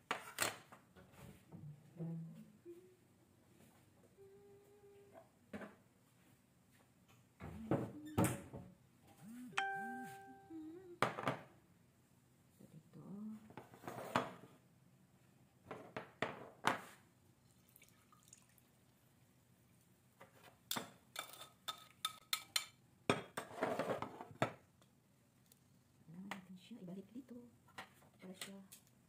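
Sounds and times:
drippings pouring into glass bowl: 17.5 - 18.6.

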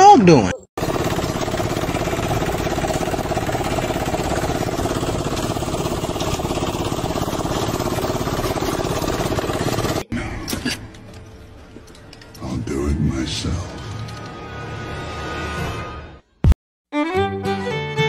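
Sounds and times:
lawn mower engine running: 0.8 - 10.1.

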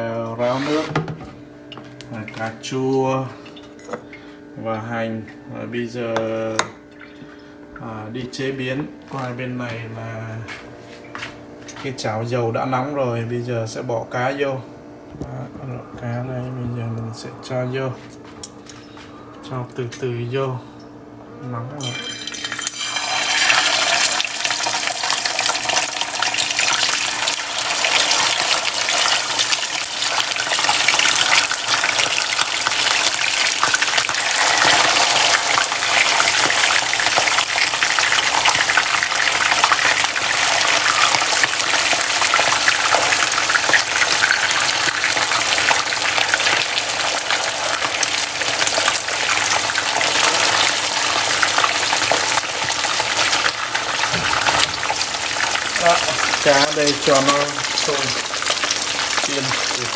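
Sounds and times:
fish sizzling in hot oil: 21.8 - 59.9.

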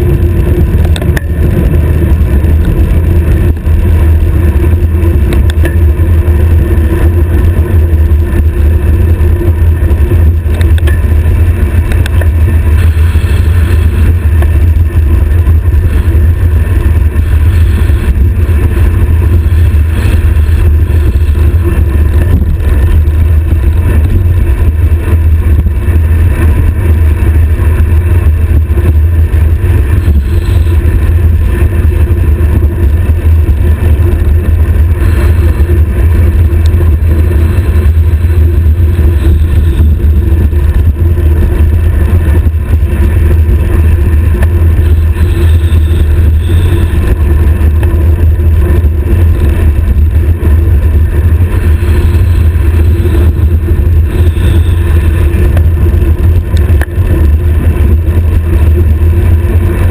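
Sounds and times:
wind buffeting microphone: 0.0 - 59.9.

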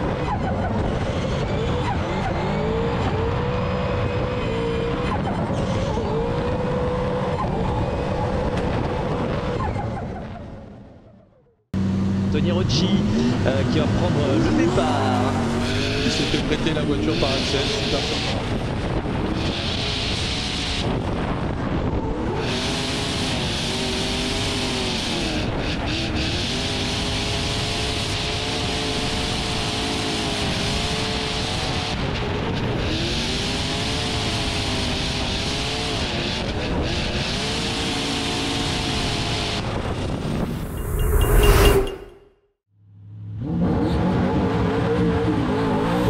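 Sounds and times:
car engine revving: 11.8 - 21.6.

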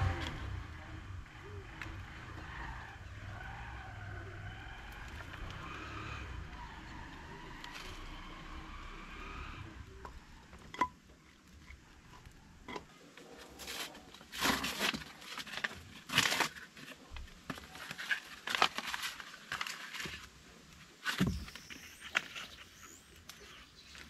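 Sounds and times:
rustling and scraping: 9.9 - 24.0.

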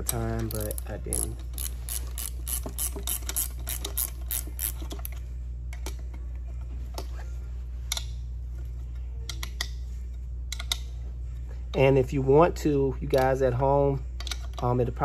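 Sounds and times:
hand ratchet clicking: 0.0 - 5.2
steady low hum: 0.0 - 15.0.

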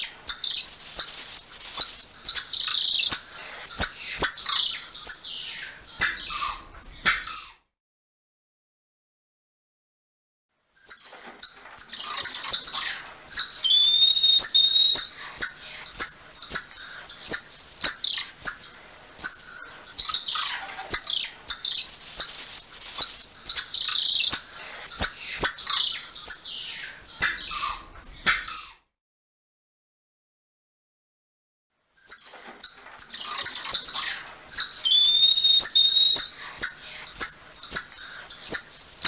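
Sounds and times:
monkeys chirping and trilling: 10.7 - 28.8, 32.0 - 39.0.

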